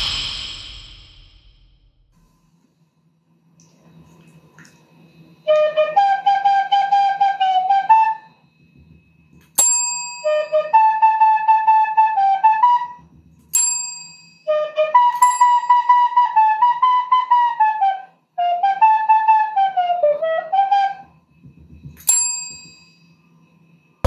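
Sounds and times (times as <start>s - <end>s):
flute-like melody: 5.4s - 8.6s, 10.2s - 13.1s, 14.5s - 21.3s.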